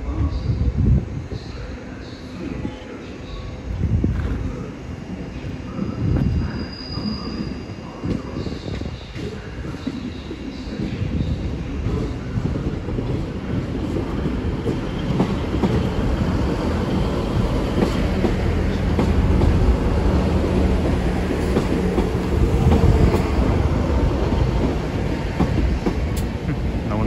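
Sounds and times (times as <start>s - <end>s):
diesel train engines rumbling: 0.0s - 27.0s
train wheels clicking over rail joints: 12.6s - 26.5s.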